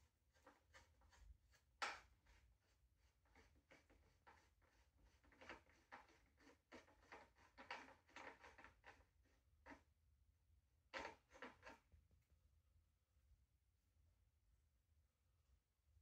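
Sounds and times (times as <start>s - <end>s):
hands rustling and clicking scooter: 3.3s - 9.8s, 10.9s - 11.9s.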